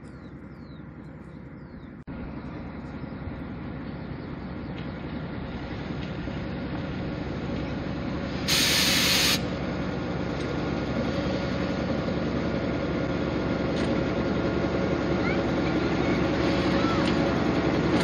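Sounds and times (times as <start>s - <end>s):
diesel locomotive engine: 0.0s - 18.0s
compressed air hiss: 8.4s - 9.4s.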